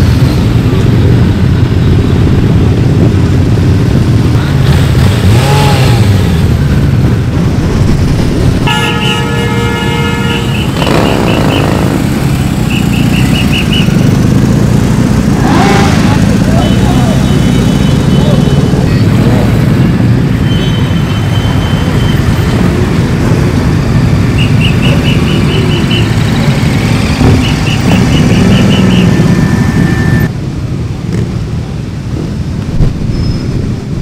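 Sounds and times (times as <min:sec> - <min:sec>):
motorcycle engines revving: 0:00.0 - 0:34.0
motorcycles rumbling past: 0:04.5 - 0:07.8, 0:10.2 - 0:20.3, 0:21.9 - 0:30.3
horn sounding: 0:08.6 - 0:14.1, 0:24.2 - 0:26.6, 0:27.2 - 0:30.3
short beeps: 0:20.4 - 0:22.4.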